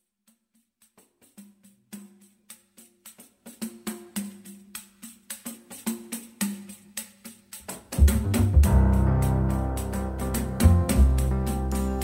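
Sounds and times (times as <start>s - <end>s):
background music with bass: 7.7s - 12.0s.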